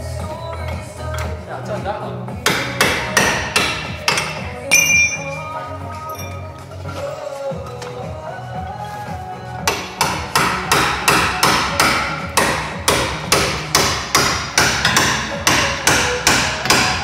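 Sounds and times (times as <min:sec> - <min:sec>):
hammer pounding steel: 0:02.4 - 0:05.3, 0:09.7 - 0:17.0.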